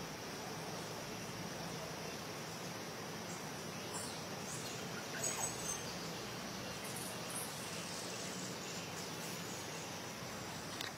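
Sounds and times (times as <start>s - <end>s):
insects hissing: 0.0s - 10.9s.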